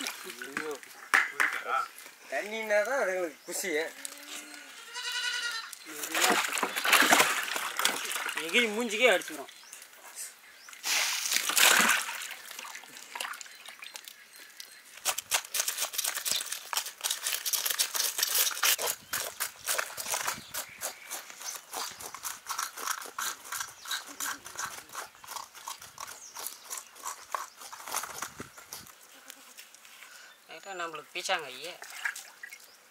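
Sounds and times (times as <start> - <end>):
fish splashing in water: 6.1 - 8.8, 10.8 - 14.0, 31.8 - 32.6
scraping fish scales: 15.0 - 25.5.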